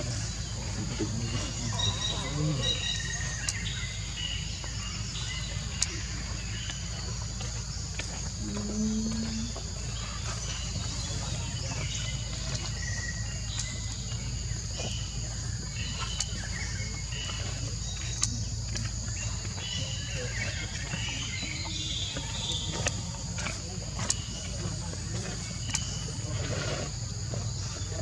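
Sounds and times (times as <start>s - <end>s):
bird chirps: 0.0s - 26.3s
high insect drone: 0.0s - 28.0s
low background rumble: 0.0s - 28.0s.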